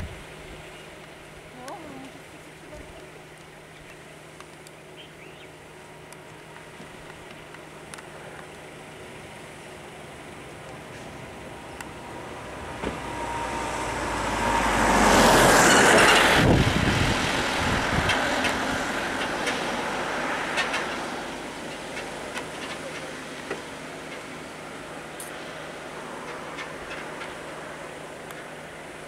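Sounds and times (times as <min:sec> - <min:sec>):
pickup truck driving past: 0:10.9 - 0:28.2.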